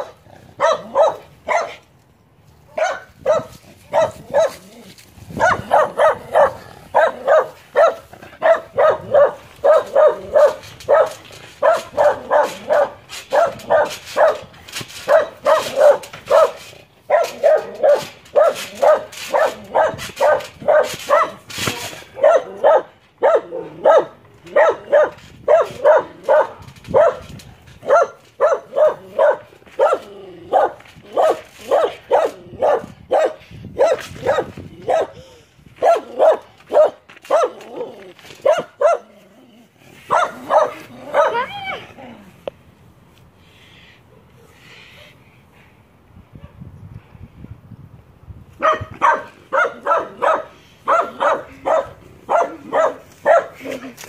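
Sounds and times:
dog barking: 0:00.0 - 0:01.8, 0:02.8 - 0:04.6, 0:05.4 - 0:14.4, 0:15.1 - 0:21.4, 0:22.2 - 0:35.2, 0:35.8 - 0:37.6, 0:38.4 - 0:39.1, 0:40.1 - 0:41.5, 0:48.6 - 0:53.6.

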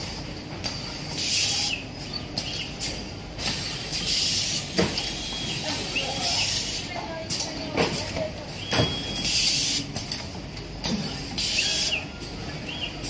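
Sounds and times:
pneumatic air hiss bursts: 0:01.1 - 0:01.8, 0:02.8 - 0:06.9, 0:08.7 - 0:10.0, 0:11.0 - 0:12.0.

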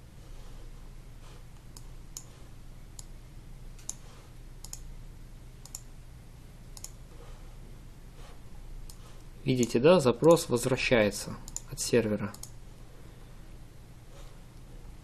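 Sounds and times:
computer mouse clicks: 0:01.6 - 0:03.2, 0:03.8 - 0:04.9, 0:05.6 - 0:05.9, 0:06.7 - 0:07.0, 0:08.8 - 0:10.4, 0:11.5 - 0:11.7, 0:12.3 - 0:12.6.

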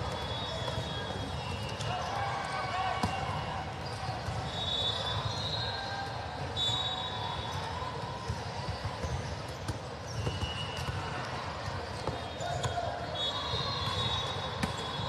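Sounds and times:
sneaker squeaks: 0:00.0 - 0:15.0
volleyballs bouncing and struck: 0:13.8 - 0:15.0.

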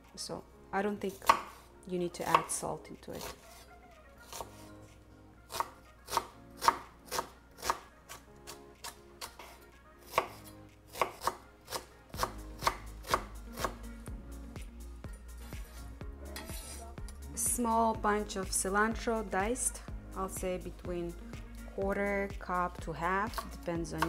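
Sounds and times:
knife chopping on wooden board: 0:01.2 - 0:01.6, 0:05.5 - 0:08.2, 0:08.8 - 0:13.8, 0:23.3 - 0:24.0
knife scraping board: 0:08.8 - 0:12.3, 0:16.4 - 0:16.8.

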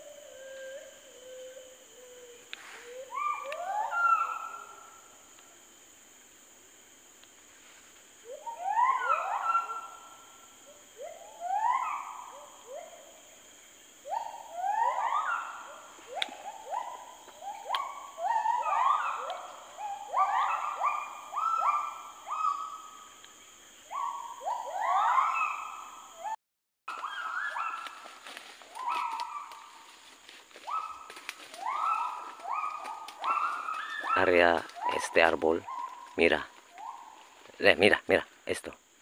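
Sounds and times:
gibbon whooping calls: 0:02.9 - 0:04.9, 0:08.3 - 0:10.1, 0:11.0 - 0:13.0, 0:14.1 - 0:22.8, 0:23.9 - 0:28.0, 0:28.7 - 0:29.7, 0:30.7 - 0:35.0.

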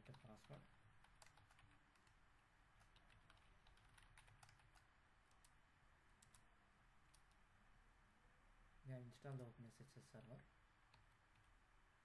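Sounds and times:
keyboard keystroke clicks: 0:02.8 - 0:05.6.

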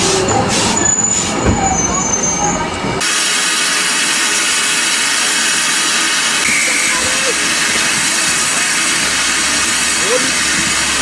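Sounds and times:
train wheels rumbling on rails: 0:00.0 - 0:11.0
faint thin wheel squeal: 0:00.3 - 0:02.6
loud hiss of steam: 0:03.0 - 0:11.0.

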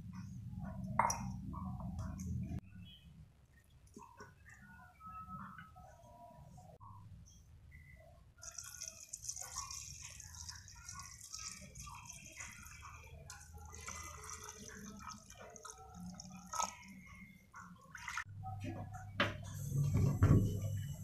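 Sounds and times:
water pouring into a metal pot: 0:08.4 - 0:18.3.

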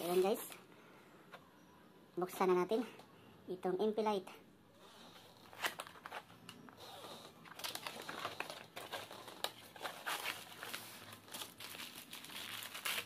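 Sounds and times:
plastic packaging crinkling: 0:05.3 - 0:13.0.

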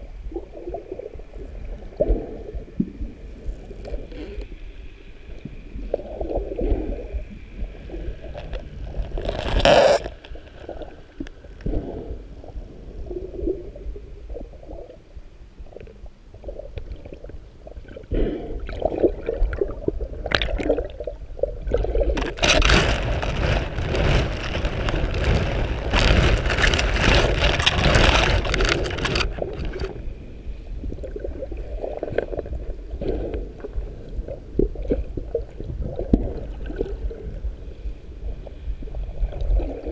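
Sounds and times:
muffled underwater sloshing: 0:00.0 - 0:39.9
splashing and bubbling: 0:05.8 - 0:12.2, 0:16.4 - 0:30.0
rush of water: 0:21.7 - 0:30.0.

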